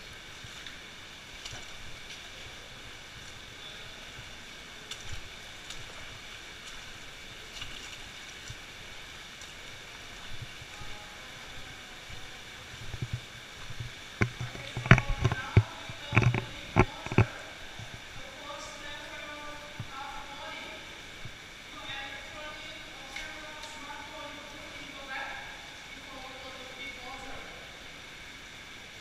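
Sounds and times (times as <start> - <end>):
stream rushing: 0.0 - 29.0
feet splashing in water: 0.2 - 21.4.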